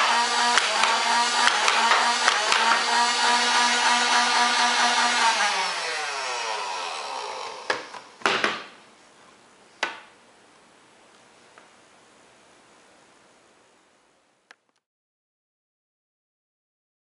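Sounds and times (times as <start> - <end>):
electric motor whining: 0.0 - 8.1.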